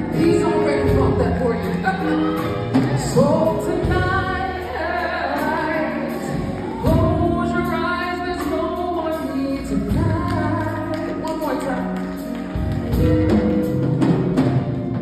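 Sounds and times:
low instrumental backing: 0.0 - 15.0
woman singing gospel: 0.1 - 12.1.

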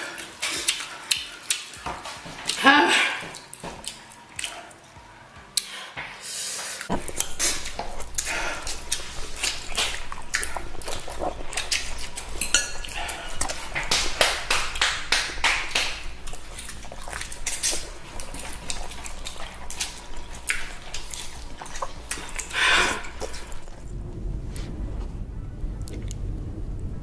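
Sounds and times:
noodles slurped and chewed: 0.0 - 2.6, 6.8 - 23.8.

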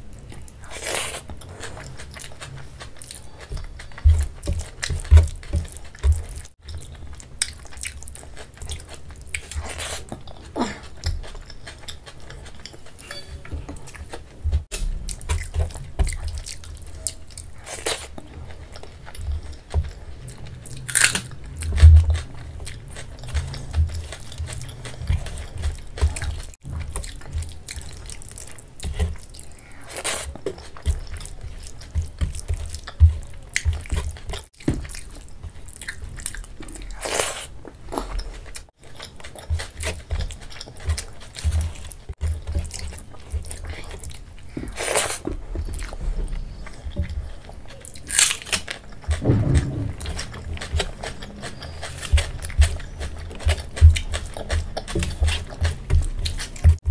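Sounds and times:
chewing: 0.0 - 56.9
low thumps: 49.1 - 54.2.

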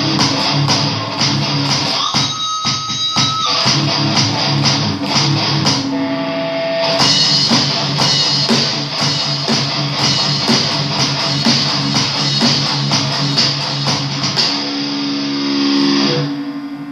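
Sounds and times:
steady drum beat: 0.0 - 5.9, 6.9 - 14.9
electric guitar metal riff: 0.0 - 16.9.

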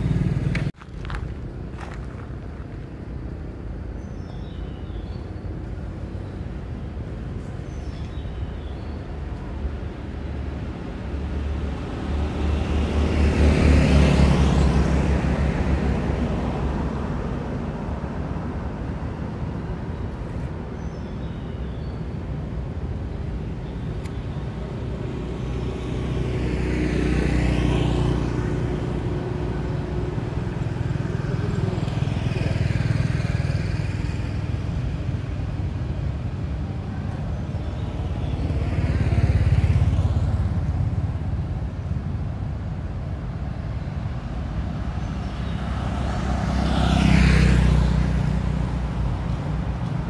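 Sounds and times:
low engine rumble: 0.0 - 13.2
motor vehicles passing: 0.0 - 50.0.

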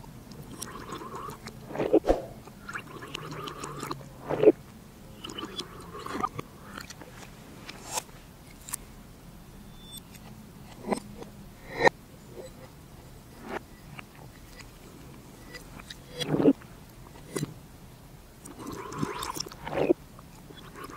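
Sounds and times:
slurping through a straw: 0.5 - 4.6, 18.4 - 20.9.

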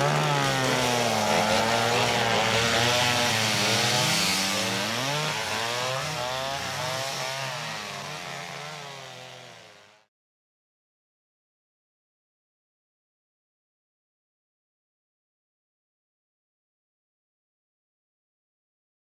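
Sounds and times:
chainsaw revving: 0.0 - 10.1.

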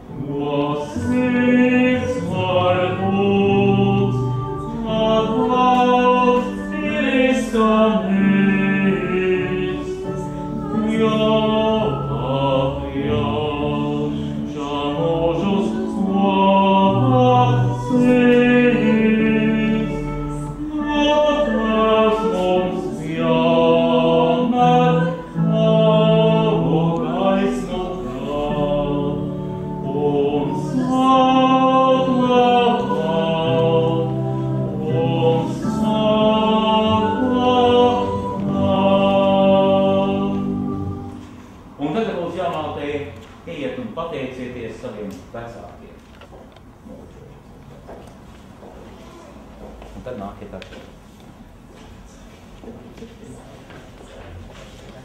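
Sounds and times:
congregation singing a hymn: 0.0 - 43.2.

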